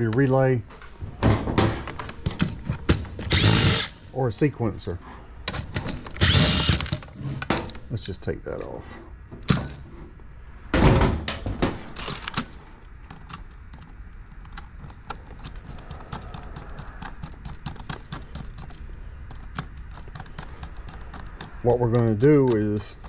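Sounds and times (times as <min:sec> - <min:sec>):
screwdriver clicks and ticks: 0:13.1 - 0:22.8.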